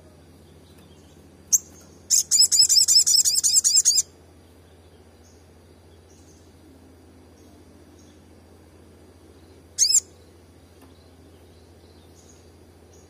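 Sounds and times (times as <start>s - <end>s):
bird calling high notes: 9.8s - 10.1s.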